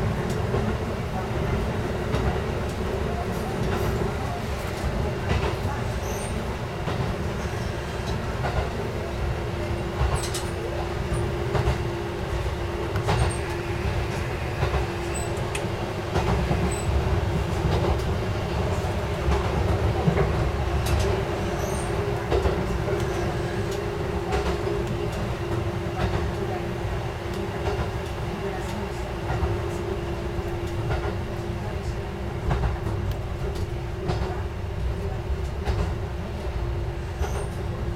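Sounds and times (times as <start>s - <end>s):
diesel railcar drone: 0.0s - 37.9s.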